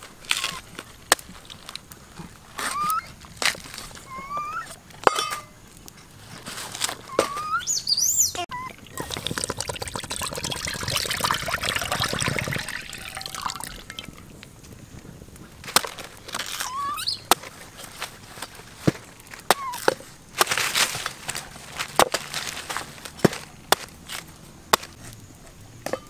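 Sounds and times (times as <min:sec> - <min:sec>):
bird chirps: 0:04.1 - 0:04.7, 0:07.1 - 0:09.1, 0:16.6 - 0:17.3
liquid pouring into a hot wok: 0:08.7 - 0:14.4.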